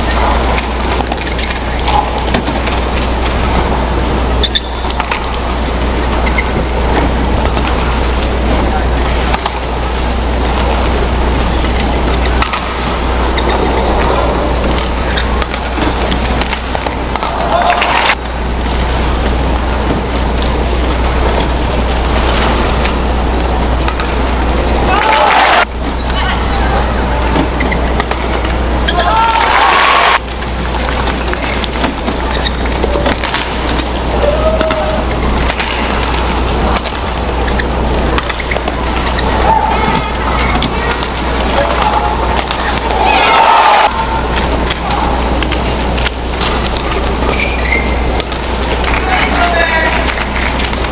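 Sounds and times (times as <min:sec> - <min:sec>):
arena background noise: 0:00.0 - 0:50.9
crowd noise: 0:00.0 - 0:50.9
shoe squeak on court: 0:04.4 - 0:04.9, 0:47.3 - 0:48.1
rackets hitting shuttlecock: 0:11.6 - 0:18.2, 0:23.8 - 0:24.3, 0:31.1 - 0:43.0.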